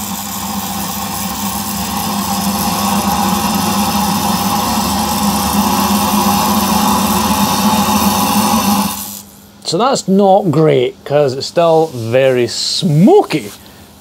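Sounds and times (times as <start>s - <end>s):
compressed air hissing: 0.0s - 9.6s
steady hum: 0.0s - 14.0s.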